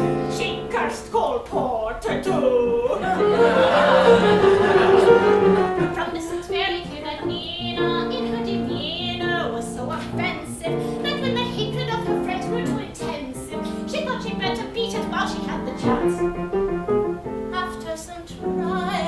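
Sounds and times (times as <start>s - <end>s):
piano chords: 0.0s - 19.0s
woman singing: 5.8s - 16.2s, 17.5s - 19.0s.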